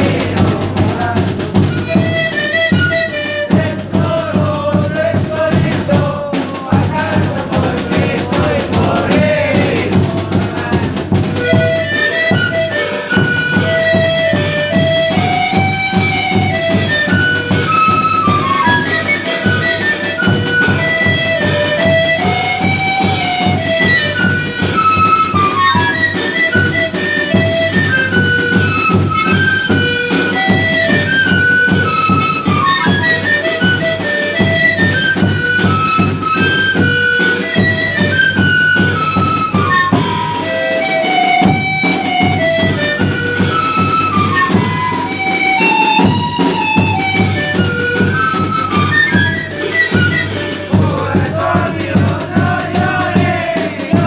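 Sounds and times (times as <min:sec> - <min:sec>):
bass drum beat: 0:00.0 - 0:02.3, 0:03.6 - 0:11.8, 0:50.8 - 0:54.0
wooden duct flutes playing melody: 0:00.0 - 0:06.2, 0:06.9 - 0:54.0
snare drum: 0:00.0 - 0:54.0.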